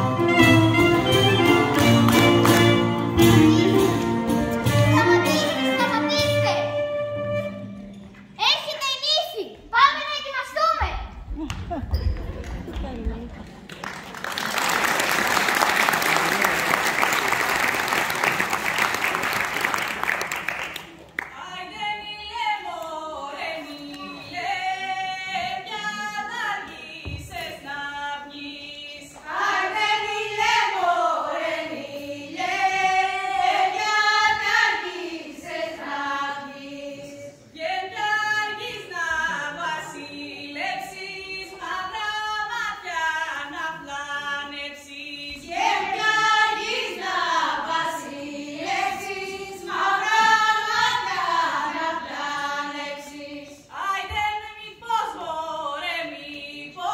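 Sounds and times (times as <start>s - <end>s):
group singing folk song: 0.0s - 5.0s, 21.2s - 56.9s.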